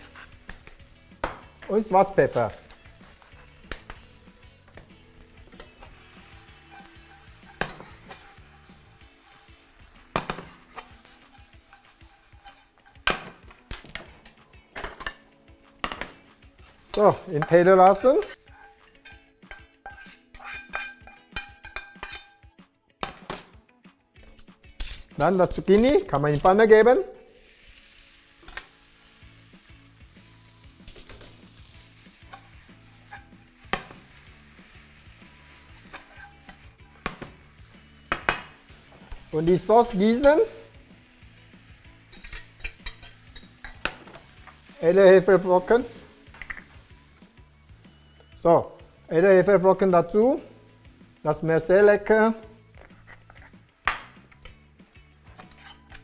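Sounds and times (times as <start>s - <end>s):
food sizzling in frying pan: 0.0s - 22.3s, 24.2s - 56.0s
spatula knocking pan: 17.3s - 22.3s.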